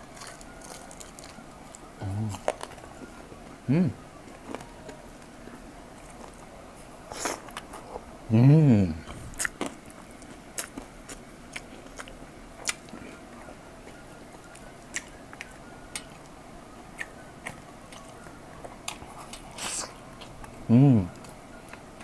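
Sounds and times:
person chewing: 0.0s - 3.2s, 7.0s - 8.1s, 9.0s - 16.3s, 16.9s - 22.0s.

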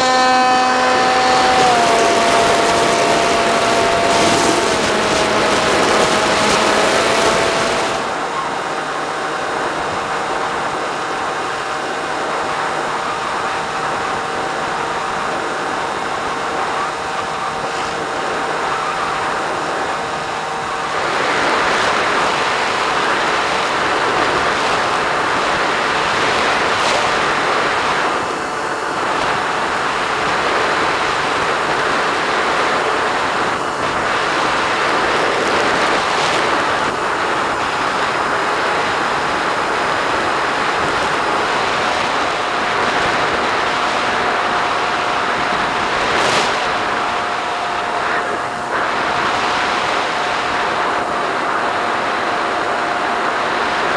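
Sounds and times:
faint electric motor tone: 0.0s - 8.9s
rush of air over microphone: 0.0s - 53.9s.

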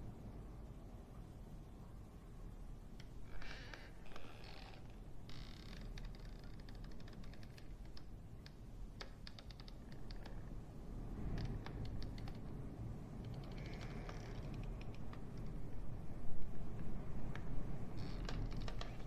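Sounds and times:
rapid little clicks: 11.2s - 12.6s, 13.2s - 15.7s, 18.2s - 19.0s.

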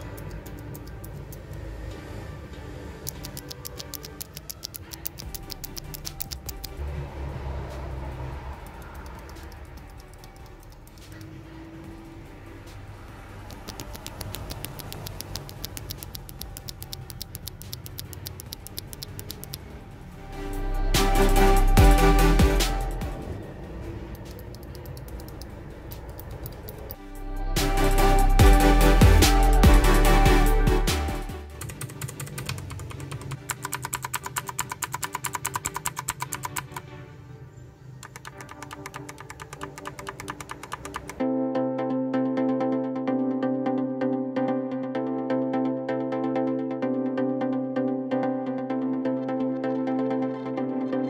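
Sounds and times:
quiet background music: 0.0s - 51.0s
mechanical keyboard switch clicks: 3.1s - 6.8s, 13.5s - 19.6s, 31.6s - 36.8s, 38.0s - 41.2s.

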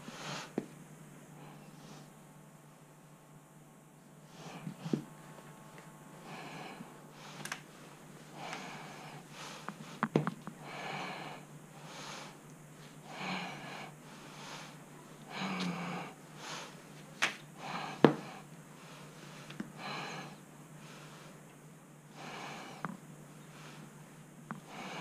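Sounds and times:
person breathing heavily: 4.3s - 5.1s, 6.2s - 16.8s, 17.6s - 21.4s, 22.1s - 25.0s.

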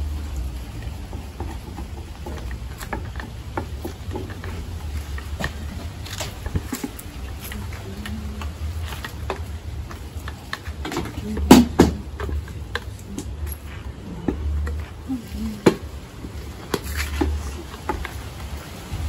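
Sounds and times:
low rumble: 18.7s - 19.0s.

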